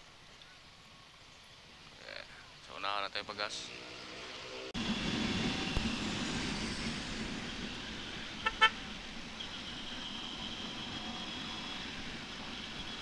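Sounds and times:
wind and road noise: 0.0s - 13.0s
vehicle horn short beeps: 8.4s - 8.8s.

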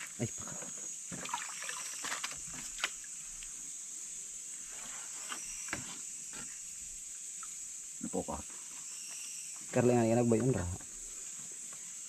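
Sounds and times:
night insects chorus: 0.0s - 12.0s
small splashes in stream water: 1.1s - 3.2s.

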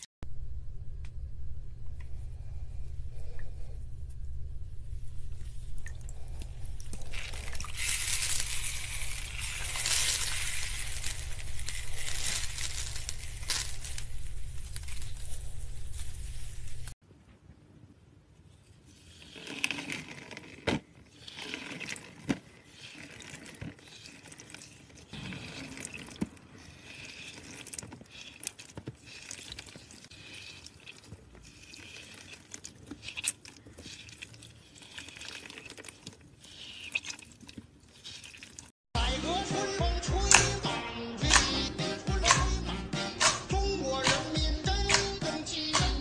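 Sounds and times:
floral foam crunching and snapping: 6.9s - 17.0s.

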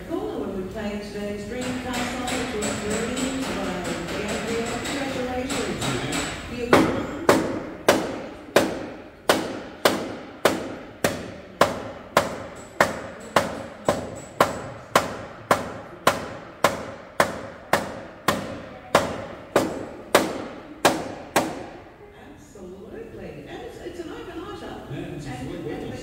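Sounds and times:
hammer blows on car metal: 1.5s - 21.8s.

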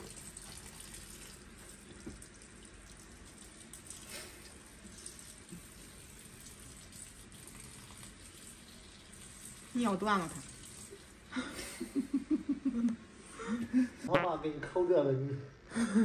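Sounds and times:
water trickling from watering can: 0.0s - 12.0s.

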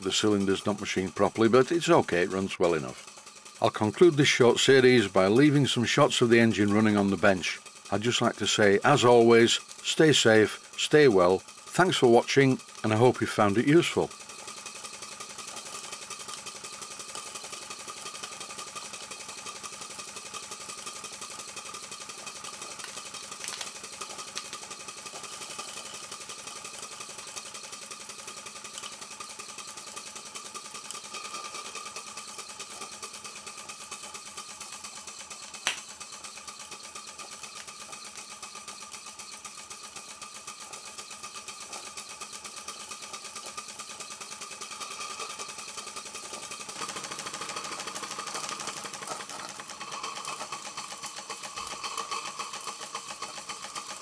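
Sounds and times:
model steam engine running: 0.0s - 54.0s
sharp click: 35.6s - 35.9s.

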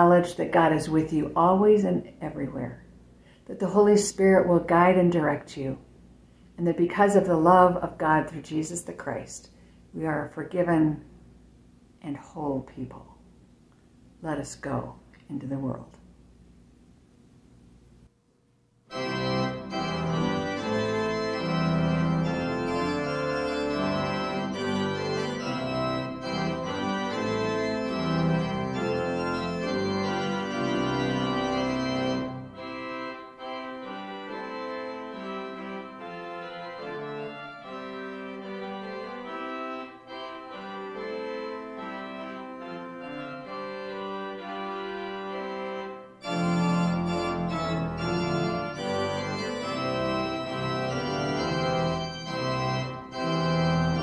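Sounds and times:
organ playing sustained chords: 18.9s - 54.0s.

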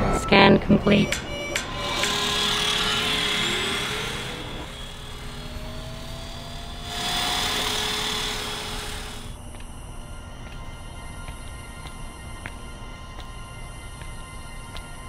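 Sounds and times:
robot vacuum whirring: 0.6s - 9.7s.

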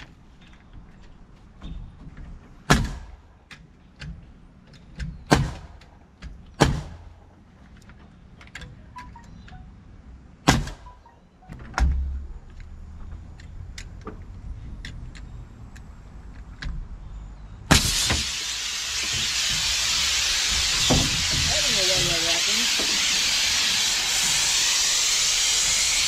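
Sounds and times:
nail gun firing: 5.3s - 5.9s, 6.6s - 7.1s, 17.7s - 22.1s
compressed air hissing: 17.7s - 26.0s.

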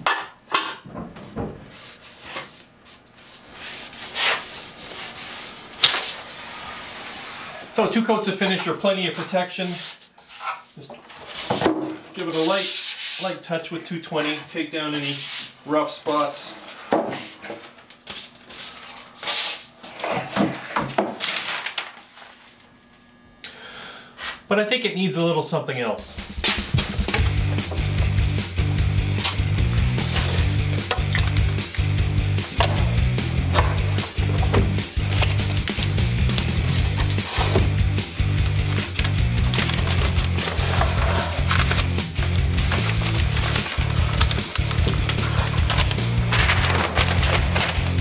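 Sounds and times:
sandpaper rubbing on wood: 3.2s - 7.6s, 12.2s - 13.4s, 36.6s - 37.7s, 39.6s - 41.8s.

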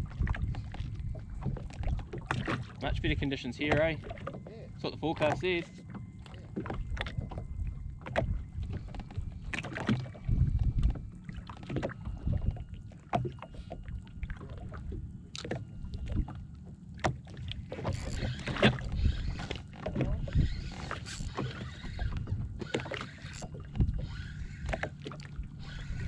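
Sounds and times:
steady low rumble: 0.0s - 17.0s
waves lapping against hull: 0.0s - 26.0s.

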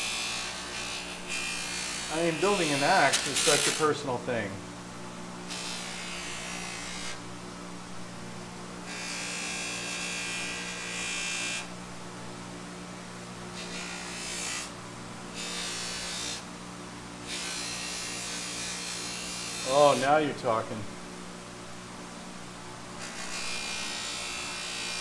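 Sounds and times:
wood rubbing on buffing wheel: 0.0s - 3.8s.

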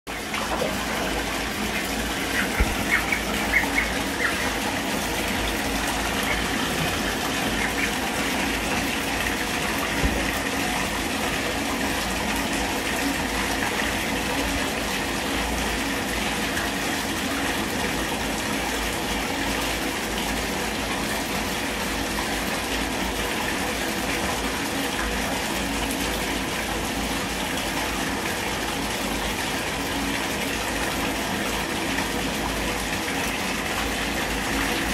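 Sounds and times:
tap running into bathtub: 0.1s - 14.1s.

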